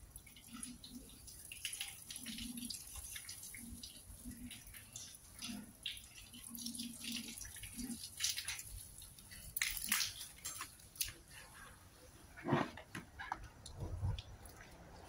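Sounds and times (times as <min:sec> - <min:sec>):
water dripping on tiled floor: 0:00.0 - 0:11.3.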